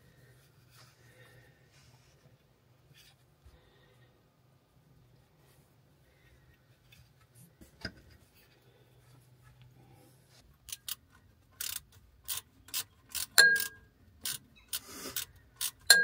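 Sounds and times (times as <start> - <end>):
socket wrench ratcheting clicks: 10.7 - 11.0, 11.6 - 16.0
ringing metal clink: 13.4 - 13.8.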